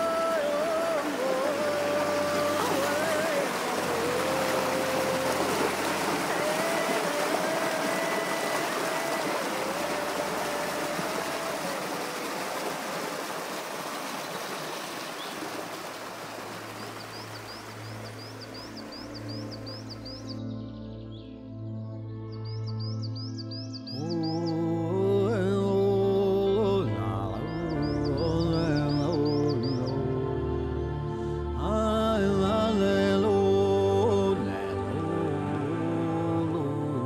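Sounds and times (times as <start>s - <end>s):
rushing river water: 0.0s - 20.4s
music with slow held notes: 17.7s - 37.0s.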